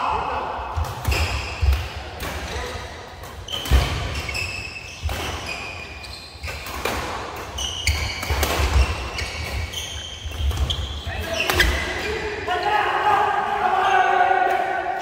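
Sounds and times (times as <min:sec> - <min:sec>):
shoes squeaking: 0:03.4 - 0:12.2
racket hitting shuttlecock: 0:06.4 - 0:09.7.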